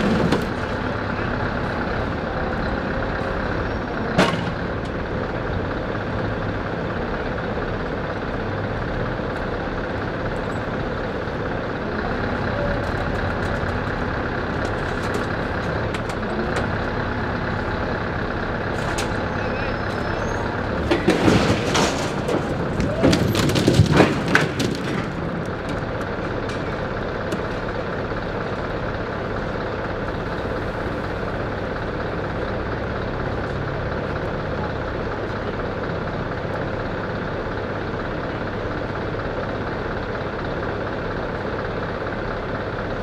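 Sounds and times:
truck engine idling: 0:00.0 - 0:43.0
loud knocks and rattles: 0:20.7 - 0:27.5.

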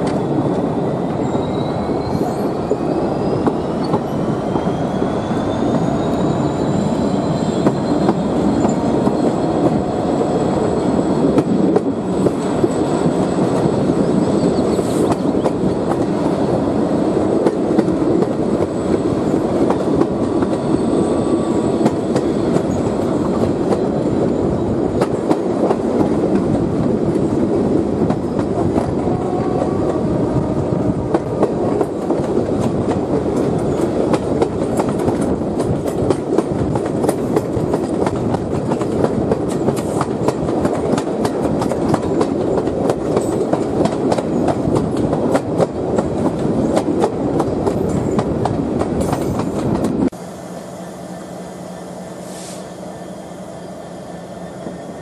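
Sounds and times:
train rumbling at speed: 0:00.0 - 0:55.0
wheels clicking over rail joints: 0:31.1 - 0:50.1.

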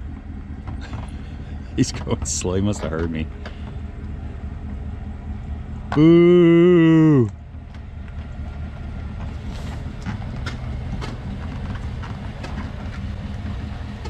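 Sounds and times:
truck engine running: 0:00.0 - 0:14.0
held tone with falling pitch: 0:05.9 - 0:07.4.

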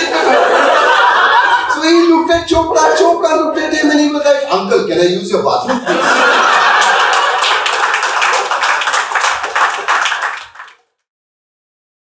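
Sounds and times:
audience applause: 0:06.0 - 0:10.9.

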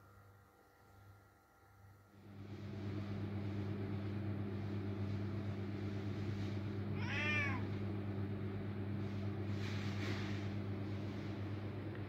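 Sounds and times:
cat meowing: 0:07.0 - 0:07.7.

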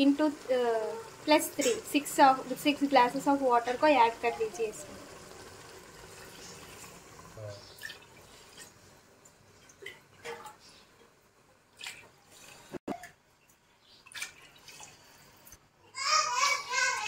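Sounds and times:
water pouring into pot: 0:00.0 - 0:09.0, 0:14.1 - 0:15.5
water splashes and drips: 0:05.5 - 0:10.8, 0:11.7 - 0:15.6.

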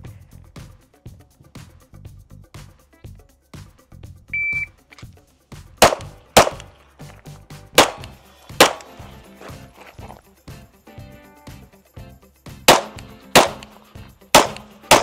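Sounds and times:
shot timer beep: 0:04.3 - 0:04.7
pistol shots: 0:05.8 - 0:06.7, 0:07.8 - 0:09.0, 0:12.7 - 0:15.0.

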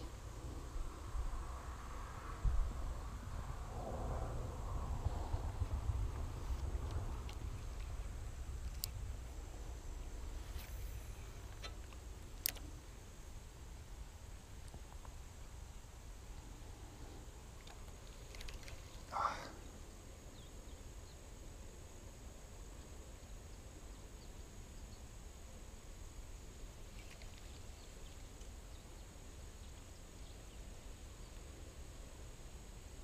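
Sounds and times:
wind rumble on microphone: 0:00.0 - 0:19.7
high insect drone: 0:00.0 - 0:33.0.

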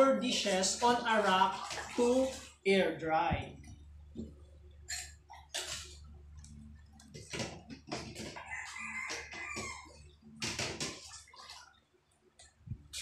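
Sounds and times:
water splashing: 0:00.0 - 0:02.7, 0:04.9 - 0:06.1, 0:07.1 - 0:13.0
dishes knocking on metal basin: 0:07.1 - 0:08.5
rooster crowing: 0:08.4 - 0:10.0.

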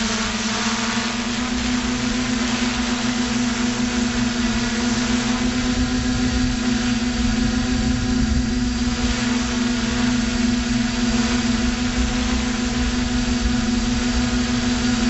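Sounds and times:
drone motors and propellers humming: 0:00.0 - 0:15.0
rushing air noise: 0:05.5 - 0:15.0.

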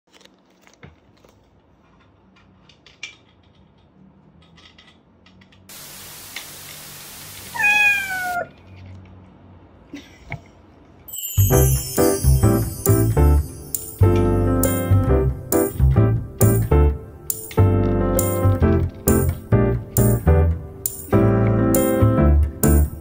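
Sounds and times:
steady hiss: 0:05.7 - 0:08.1
cat meowing: 0:07.5 - 0:08.6.

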